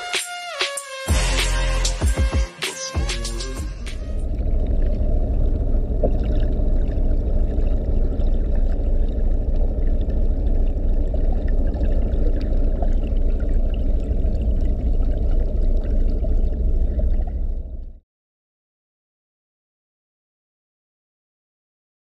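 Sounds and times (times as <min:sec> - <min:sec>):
muffled underwater water churning: 0:04.0 - 0:18.0.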